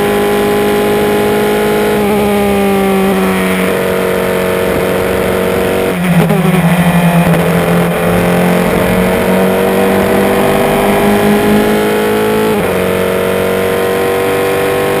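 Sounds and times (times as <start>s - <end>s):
racing car engine accelerating: 0.0s - 15.0s.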